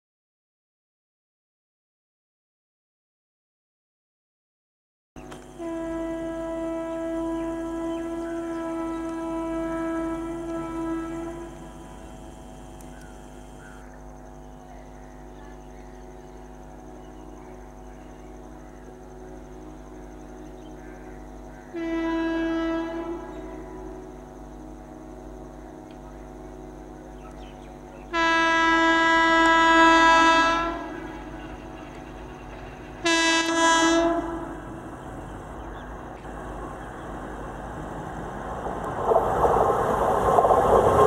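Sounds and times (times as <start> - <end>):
train horn blasts: 5.2 - 12.4, 21.6 - 25.0, 25.7 - 35.0
train rumble: 5.2 - 41.0.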